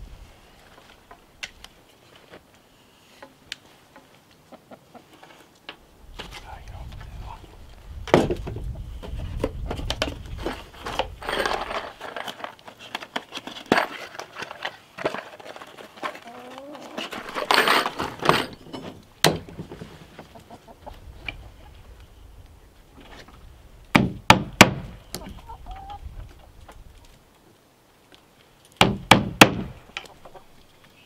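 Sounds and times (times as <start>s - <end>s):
hens clucking: 3.1s - 5.4s, 16.0s - 17.3s, 19.9s - 21.9s, 25.2s - 26.7s, 29.9s - 30.6s.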